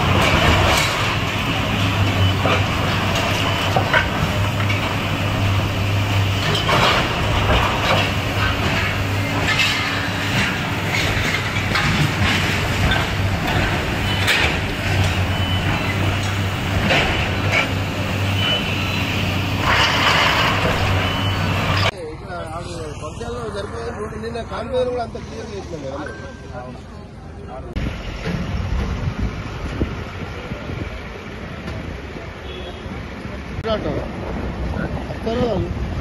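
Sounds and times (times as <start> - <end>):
diesel engine running: 0.0 - 32.2.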